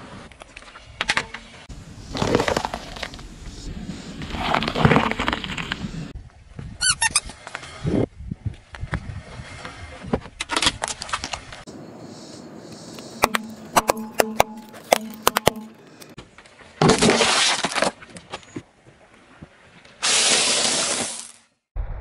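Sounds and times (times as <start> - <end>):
wafers crunching: 12.9 - 16.2.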